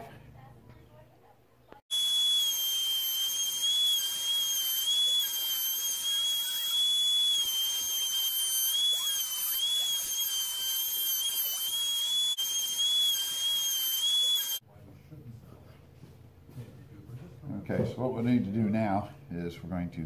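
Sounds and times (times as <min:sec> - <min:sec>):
router whining while cutting wood: 0:01.9 - 0:14.6.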